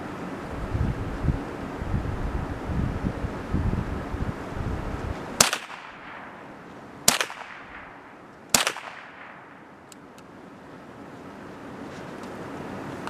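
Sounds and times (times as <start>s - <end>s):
rifle shots: 5.4s - 9.8s.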